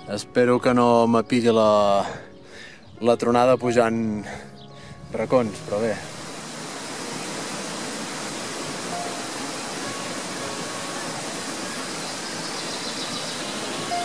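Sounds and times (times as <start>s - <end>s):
faint music notes: 0.0s - 14.0s
stream water rushing: 5.2s - 14.0s.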